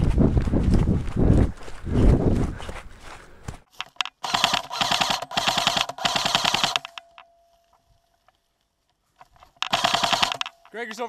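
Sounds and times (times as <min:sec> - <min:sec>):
airsoft rifle firing full auto: 0:04.2 - 0:07.0, 0:09.6 - 0:10.5.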